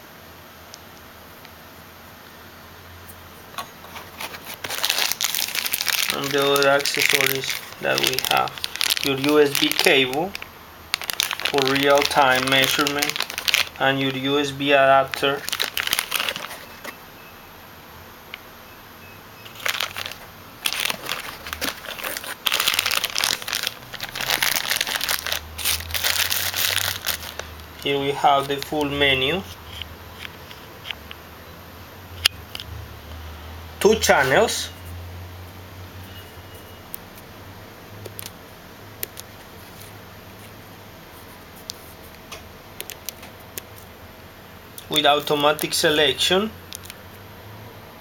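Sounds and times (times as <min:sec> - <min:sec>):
plastic bag crinkling: 0:03.6 - 0:17.0, 0:19.4 - 0:30.9, 0:44.8 - 0:47.0.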